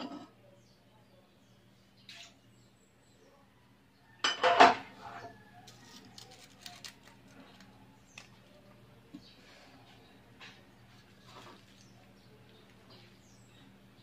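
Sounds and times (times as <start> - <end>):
cookware clattering: 4.2 - 5.2.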